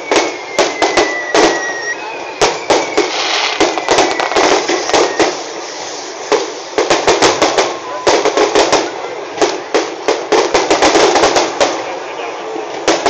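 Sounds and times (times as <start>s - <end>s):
falling high whistle: 0.0s - 6.2s, 7.3s - 8.3s
crackling hiss: 0.0s - 13.0s
fireworks bangs and cracks: 0.0s - 13.0s.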